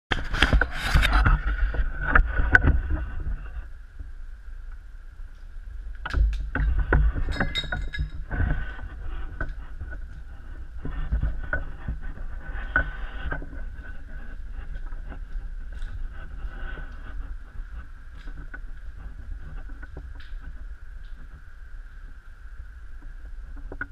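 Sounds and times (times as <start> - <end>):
steady low rumble: 0.1 - 23.9
footsteps crunching over rubble: 6.0 - 22.2.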